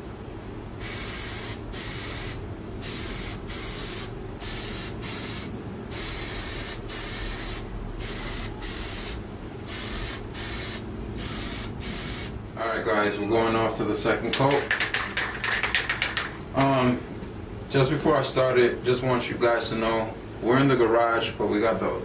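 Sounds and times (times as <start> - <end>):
aerosol can spraying: 0.8 - 12.4.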